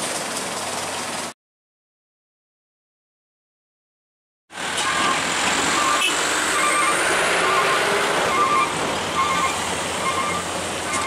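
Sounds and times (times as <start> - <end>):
truck engine under load: 4.5 - 11.0.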